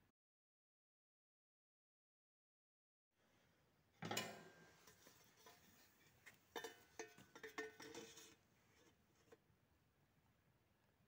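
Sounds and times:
metal pipe fittings clanking: 4.0 - 8.4.

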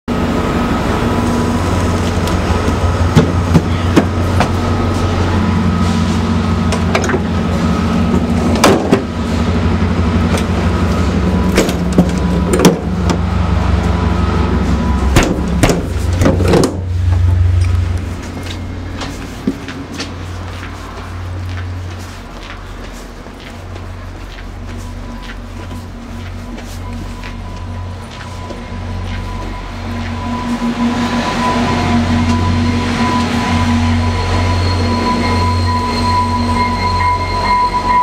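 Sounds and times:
train equipment hum: 0.1 - 38.0
faint whine: 0.3 - 23.2
train door closing clicks: 2.0 - 5.0, 6.7 - 7.4, 8.1 - 9.2, 11.4 - 13.3, 15.1 - 20.2
footsteps on steel floor: 2.6 - 5.2, 15.2 - 30.8.

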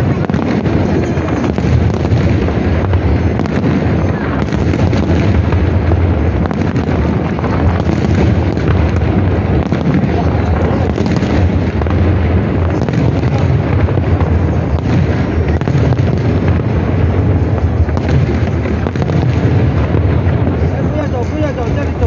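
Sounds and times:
fireworks bangs and crackle: 0.0 - 22.0.

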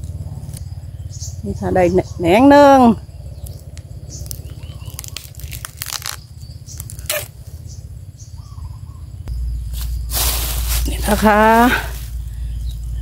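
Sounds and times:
low rumble on microphone: 0.0 - 13.0
bamboo sheaths crackling and snapping: 3.4 - 7.4.

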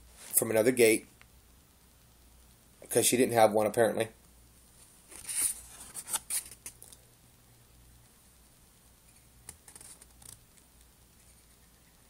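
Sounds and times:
low steady hum: 0.0 - 12.0
paper sheet crackling: 9.5 - 10.4.

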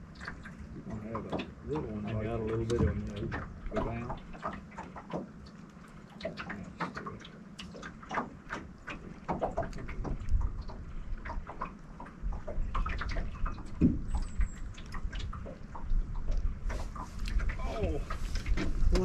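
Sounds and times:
waves lapping against boat hull: 0.0 - 19.0
wind rumbling on microphone: 6.2 - 19.0.

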